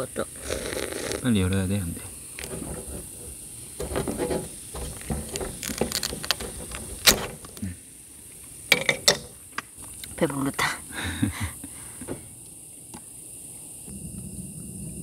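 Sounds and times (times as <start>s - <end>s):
lid being opened: 2.4s - 7.6s
camp cookware clicking: 3.8s - 7.6s.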